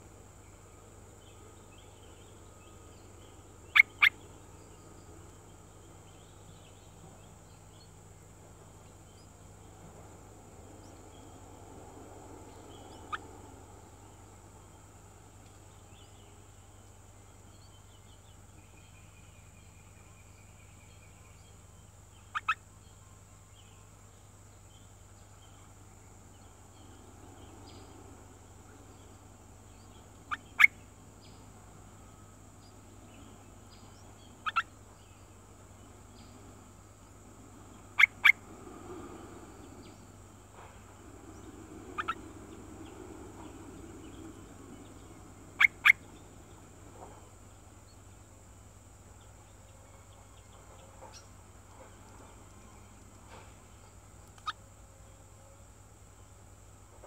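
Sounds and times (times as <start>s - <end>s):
songbird double chirps: 3.7s - 4.2s, 22.2s - 22.6s, 32.0s - 35.1s, 41.4s - 45.0s, 45.6s - 46.2s.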